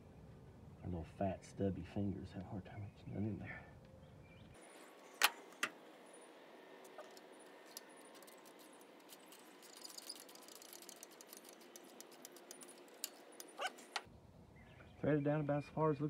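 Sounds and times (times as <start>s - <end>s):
ratchet wrench clicking: 9.1s - 14.0s.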